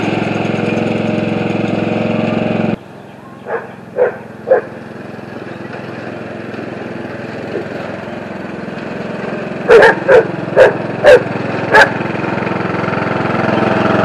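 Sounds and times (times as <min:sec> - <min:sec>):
riding lawn mower engine: 0:00.0 - 0:14.0
dog barking: 0:03.4 - 0:04.8, 0:09.7 - 0:12.0.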